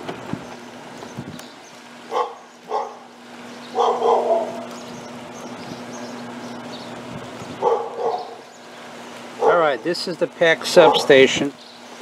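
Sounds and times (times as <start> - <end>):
dog barking: 2.1 - 3.1, 3.7 - 4.6, 7.6 - 8.4, 9.4 - 9.7, 10.8 - 11.2.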